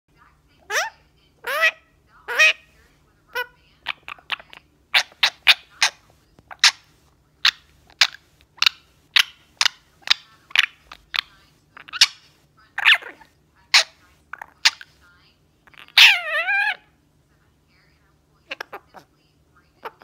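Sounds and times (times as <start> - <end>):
parakeet squawk: 0.6 - 17.0, 18.4 - 20.0
parakeet chirping and clicking: 3.3 - 15.0.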